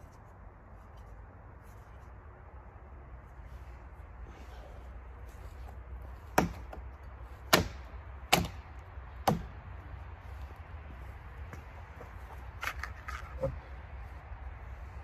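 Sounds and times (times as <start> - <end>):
hatchet chopping branches: 6.2 - 9.8.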